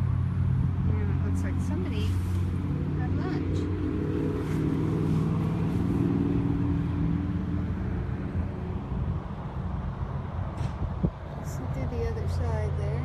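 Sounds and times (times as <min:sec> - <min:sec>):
low traffic rumble: 0:00.0 - 0:13.0
vehicle engine hum: 0:00.0 - 0:13.0.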